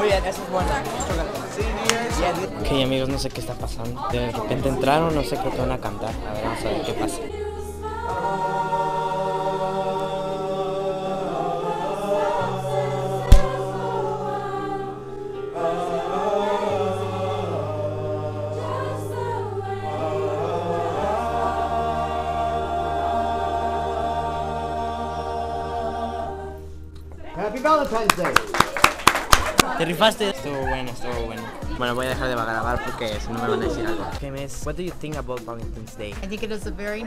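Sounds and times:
choir singing in harmony: 0:00.0 - 0:27.0, 0:29.8 - 0:34.2
sharp knock: 0:13.3 - 0:13.6.

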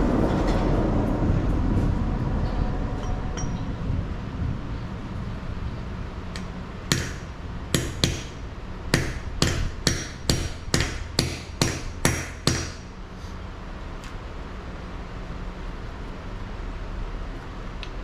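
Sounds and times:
hammer striking steel: 0:03.0 - 0:03.7, 0:06.4 - 0:12.9.

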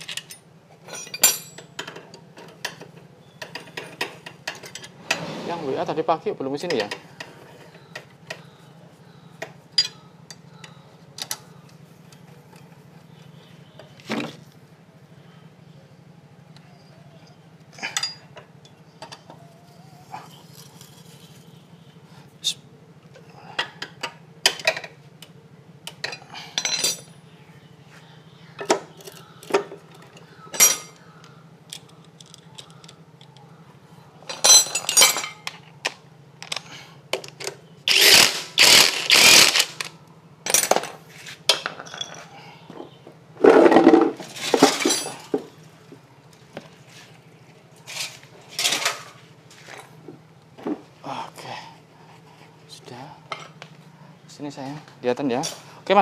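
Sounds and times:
metal tools clinking: 0:00.0 - 0:05.0, 0:09.8 - 0:10.4, 0:17.2 - 0:19.3, 0:25.9 - 0:27.2, 0:28.6 - 0:31.0, 0:34.2 - 0:35.6, 0:37.3 - 0:42.4, 0:43.6 - 0:45.4
loud noisy bursts: 0:37.9 - 0:39.8.

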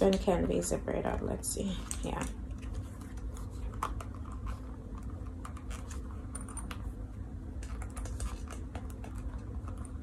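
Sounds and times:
zipper clicking and scratching: 0:03.6 - 0:06.7.

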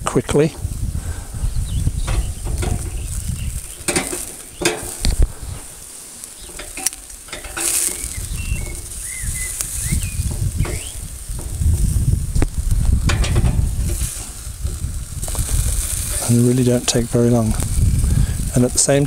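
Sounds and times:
vegetable slices sizzling on grill: 0:00.3 - 0:19.0
metal tongs clicking on grate: 0:02.1 - 0:03.0, 0:03.8 - 0:05.2, 0:06.4 - 0:09.0, 0:12.6 - 0:14.8.

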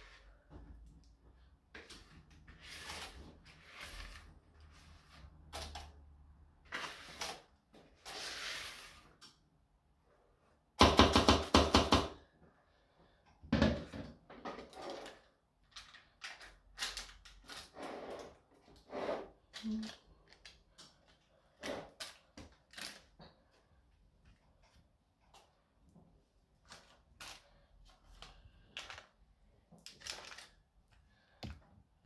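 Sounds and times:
spatula scraping plastic bowl: 0:01.8 - 0:05.7, 0:06.6 - 0:09.2, 0:17.6 - 0:19.5.

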